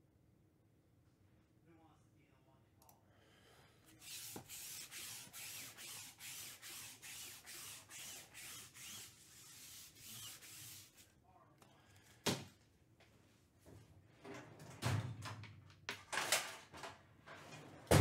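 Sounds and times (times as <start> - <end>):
lint roller rubbing on mat: 3.9 - 11.1.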